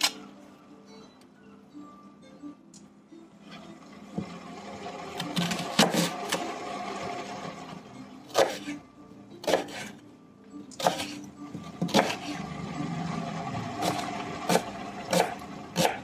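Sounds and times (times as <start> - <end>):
knife chopping on wooden board: 8.3 - 8.7, 9.4 - 9.9, 10.8 - 11.2, 11.8 - 12.3, 13.8 - 16.0.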